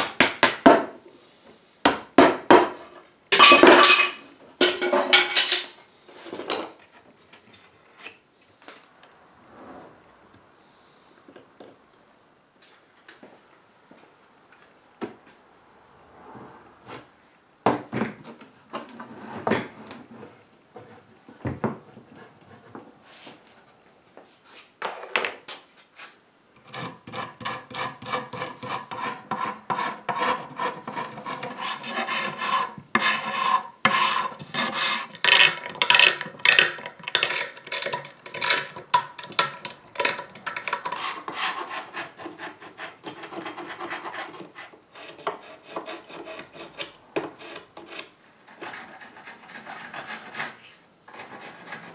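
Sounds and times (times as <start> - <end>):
metal tool rasping wood: 26.6 - 51.9.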